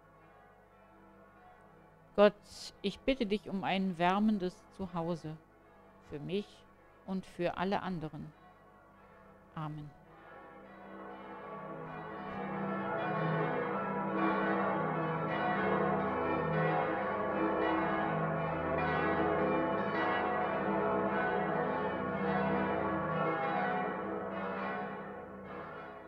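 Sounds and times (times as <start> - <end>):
church bells pealing: 0.0 - 1.8, 10.1 - 26.0.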